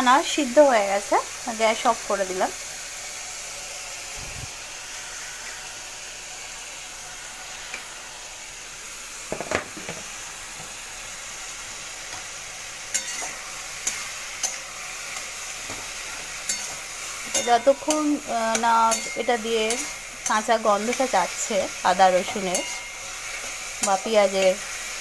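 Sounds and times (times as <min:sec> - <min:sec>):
vegetables sizzling in a metal pan: 0:00.0 - 0:25.0
spatula scraping the pan: 0:12.9 - 0:21.3, 0:22.2 - 0:24.5.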